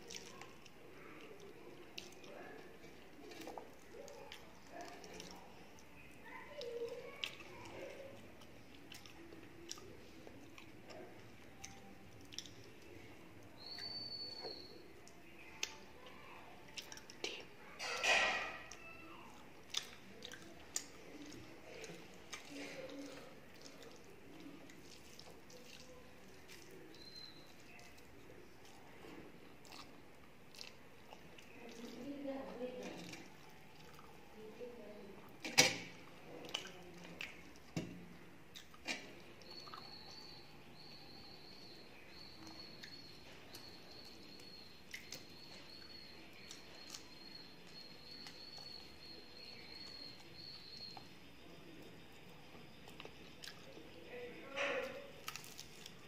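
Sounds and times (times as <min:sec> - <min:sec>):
fingers mixing food on metal plate: 0:00.0 - 0:40.9
chewing: 0:00.0 - 0:56.0
mouth clicks and smacks: 0:06.6 - 0:12.9, 0:19.6 - 0:27.1, 0:36.4 - 0:40.9, 0:44.8 - 0:48.9
fingers mixing rice: 0:18.6 - 0:34.9.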